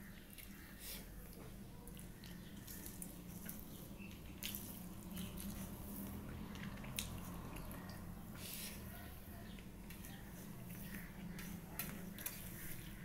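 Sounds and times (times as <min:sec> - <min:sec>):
wet squishes of hand mixing food: 0:00.0 - 0:13.0
chewing: 0:00.2 - 0:08.0.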